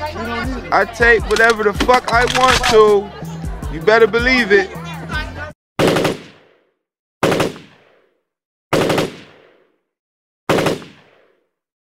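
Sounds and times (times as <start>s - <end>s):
machine-gun fire with echo: 5.8s - 6.6s, 7.2s - 8.1s, 8.7s - 9.7s, 10.5s - 11.5s.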